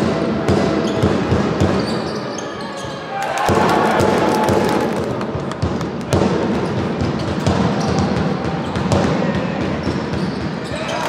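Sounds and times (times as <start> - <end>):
basketball bouncing: 3.4 - 10.8.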